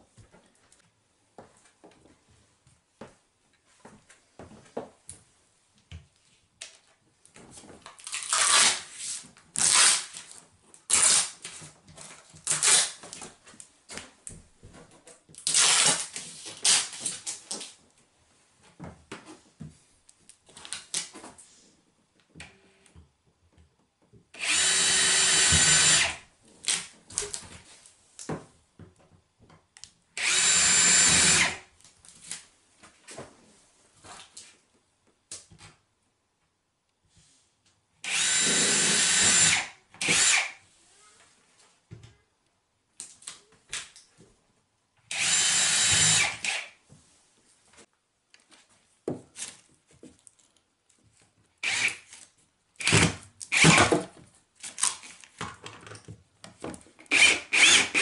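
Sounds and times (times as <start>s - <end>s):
cordless drill motor: 24.4s - 26.2s, 30.2s - 31.6s, 38.1s - 40.5s, 45.1s - 46.6s, 51.6s - 52.0s, 52.8s - 53.9s, 57.1s - 58.0s
drill clicks: 24.4s - 26.2s, 30.2s - 31.6s, 38.1s - 40.5s, 45.1s - 46.6s, 51.6s - 52.0s, 52.8s - 53.8s, 57.1s - 58.0s.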